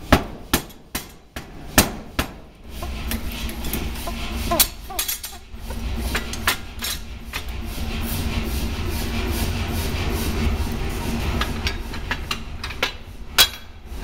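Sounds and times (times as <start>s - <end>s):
power hammer striking steel: 0.0s - 5.4s
machine drive low hum: 1.6s - 14.0s.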